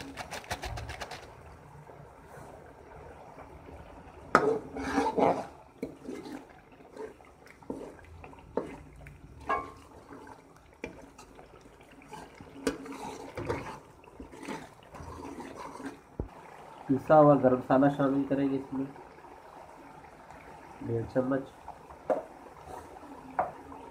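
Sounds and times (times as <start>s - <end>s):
wet frying sound: 0.0s - 23.9s
ladle scraping a pot: 4.3s - 16.1s.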